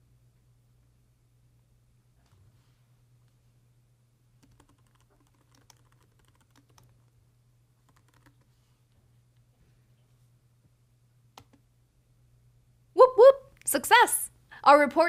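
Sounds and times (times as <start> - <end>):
low steady hum: 0.0 - 15.0
keyboard typing: 4.4 - 7.1, 7.8 - 8.5, 11.4 - 11.6.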